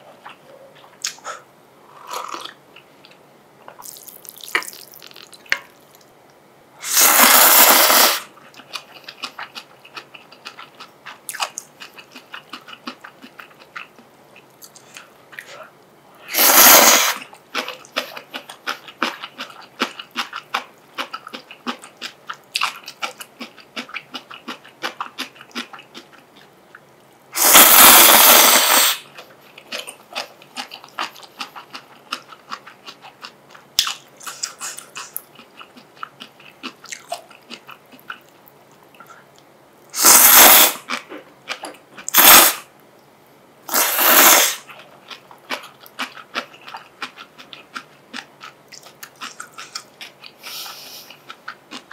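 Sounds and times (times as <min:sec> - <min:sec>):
person chewing noodles: 0:00.1 - 0:06.1, 0:07.0 - 0:15.7, 0:16.3 - 0:26.8, 0:27.4 - 0:42.5, 0:43.7 - 0:51.9
loud slurps: 0:06.8 - 0:08.3, 0:16.3 - 0:17.3, 0:27.4 - 0:29.0, 0:40.0 - 0:40.9, 0:42.1 - 0:42.6, 0:43.7 - 0:44.7.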